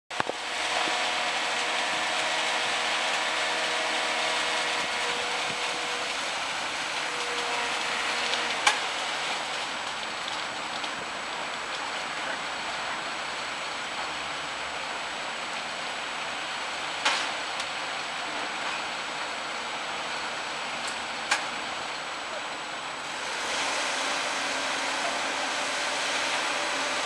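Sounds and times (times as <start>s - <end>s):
multi-tone machine whine: 0.1s - 13.3s, 22.6s - 27.0s
diesel engines humming: 0.1s - 27.0s.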